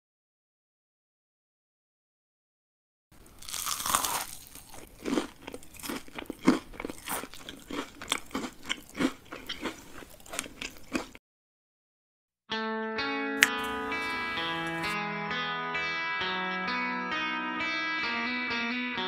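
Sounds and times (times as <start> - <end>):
crisp food crunching: 3.2 - 11.2, 13.4 - 15.0.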